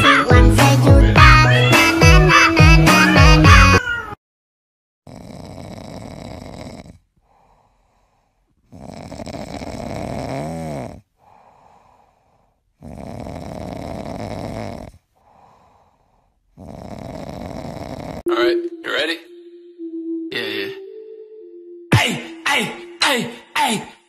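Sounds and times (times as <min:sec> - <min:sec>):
pet snoring: 0:05.1 - 0:18.3.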